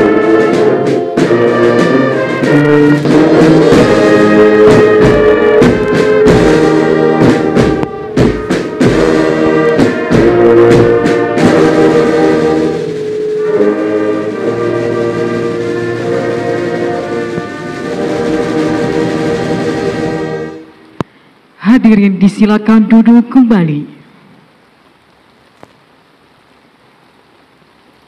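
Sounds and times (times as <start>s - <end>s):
percussion strokes: 0.0s - 20.8s
brass band playing: 0.0s - 20.9s.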